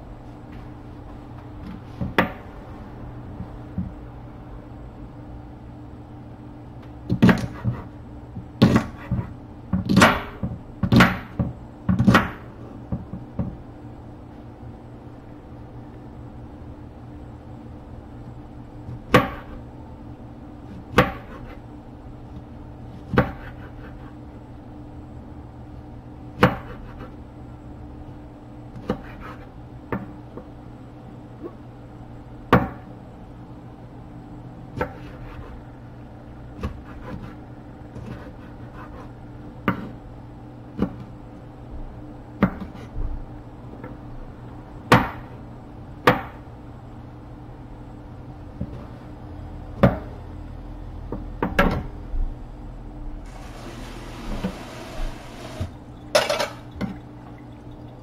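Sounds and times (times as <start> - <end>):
knife chopping on wooden board: 7.1 - 7.9, 8.6 - 12.4, 18.9 - 19.6, 20.7 - 21.5, 23.0 - 24.0, 26.4 - 27.0.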